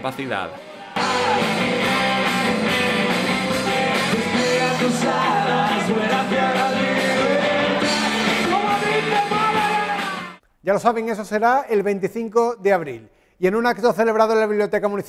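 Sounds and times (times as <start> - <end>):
person singing: 1.0 - 2.6, 3.5 - 10.4
live rock band playing: 1.0 - 10.4.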